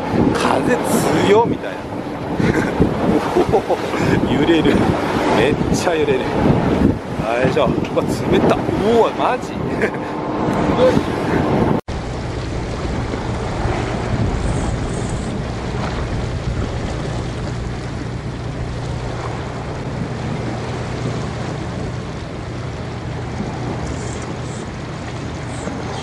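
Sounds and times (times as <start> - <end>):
boat engine running: 0.0 - 26.0
water splashing: 0.0 - 26.0
wind: 0.0 - 26.0.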